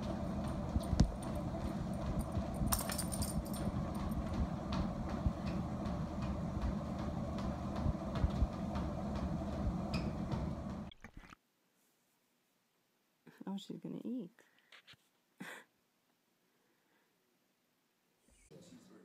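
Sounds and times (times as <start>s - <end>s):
footsteps on treadmill belt: 0.0s - 10.9s
treadmill motor humming: 0.0s - 10.9s.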